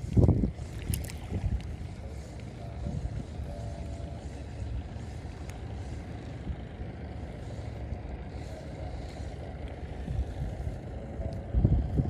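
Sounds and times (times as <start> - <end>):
faint ticks: 0.0 - 2.6, 5.2 - 6.1, 11.2 - 11.9
low rumble of wind: 0.0 - 12.0.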